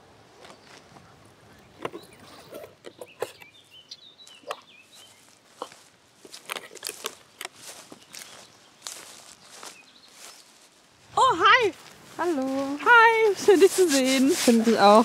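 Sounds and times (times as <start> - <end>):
small objects being handled: 5.6 - 10.3.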